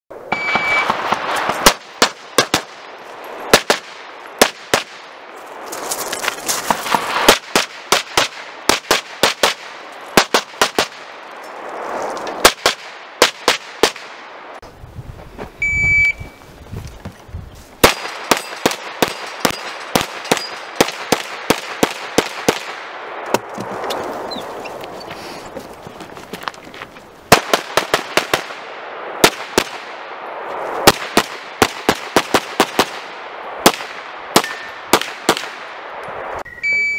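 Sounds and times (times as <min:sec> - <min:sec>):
shot timer beep: 0:00.3 - 0:00.9, 0:15.6 - 0:16.4, 0:36.5 - 0:36.9.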